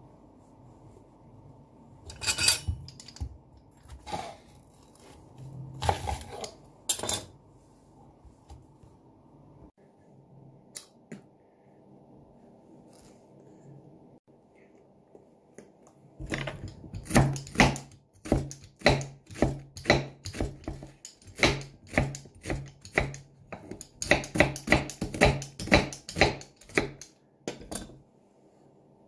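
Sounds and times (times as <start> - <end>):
knife slicing onion on wooden board: 16.8 - 27.1.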